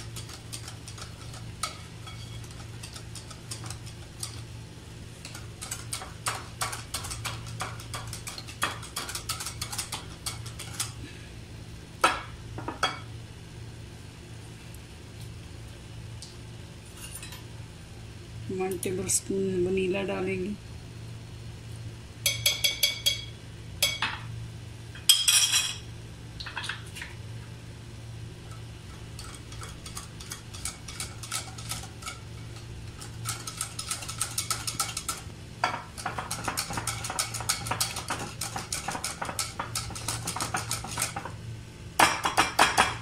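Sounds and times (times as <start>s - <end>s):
whisk beating batter in glass bowl: 0.0s - 4.5s, 5.2s - 11.0s, 28.9s - 41.4s
metal clinking on glass bowl: 22.3s - 24.2s, 25.0s - 25.8s.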